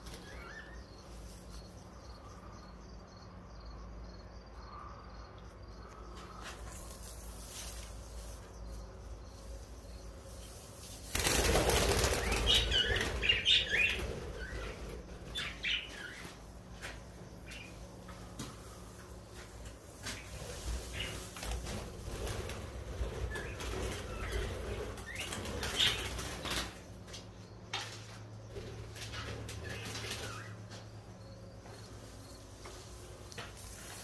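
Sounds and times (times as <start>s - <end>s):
budgerigar wings flapping: 11.1s - 15.0s.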